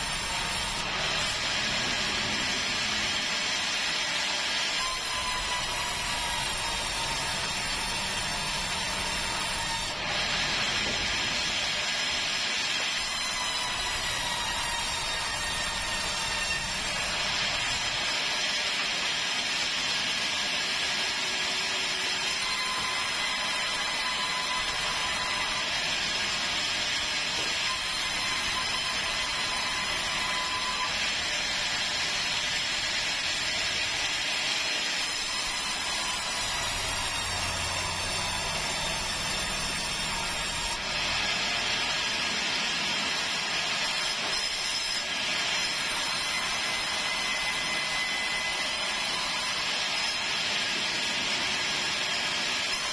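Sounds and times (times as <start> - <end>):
sawmill saw cutting timber: 0.0 - 52.9.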